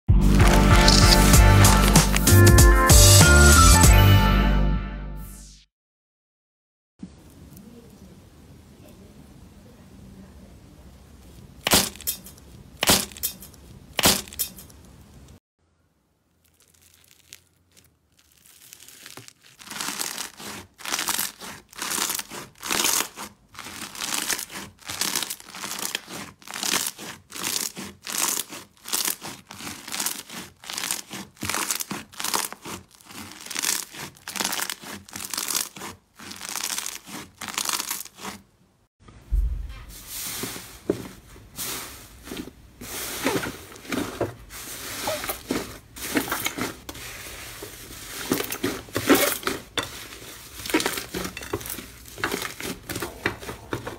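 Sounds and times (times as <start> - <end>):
slime crackling: 0.2 - 2.5, 16.2 - 38.5, 41.7 - 53.9
slime squishing: 0.2 - 2.5, 16.3 - 38.5, 40.3 - 53.9.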